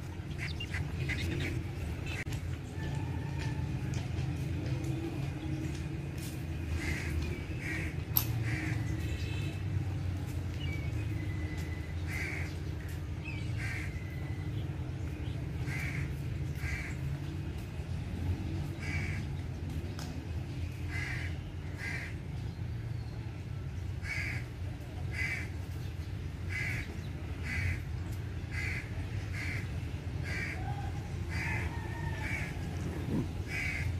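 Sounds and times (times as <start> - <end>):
crows cawing: 12.1 - 12.5, 15.7 - 16.9, 24.0 - 24.5, 27.4 - 27.8, 28.5 - 32.5, 33.5 - 33.9.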